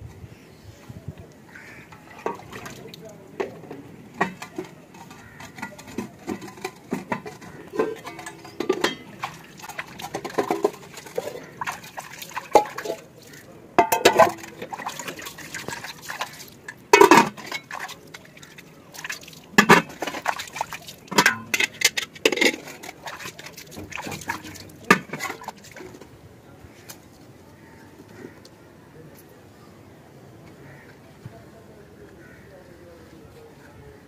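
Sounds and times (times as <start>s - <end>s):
metal dishes clanking together: 1.8s - 13.1s, 13.8s - 26.0s
hands splashing water in a pot: 1.8s - 26.1s.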